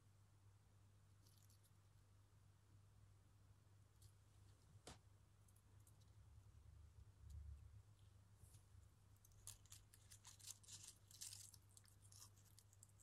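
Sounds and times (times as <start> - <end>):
leafy twigs rustling and crackling: 9.2 - 13.0.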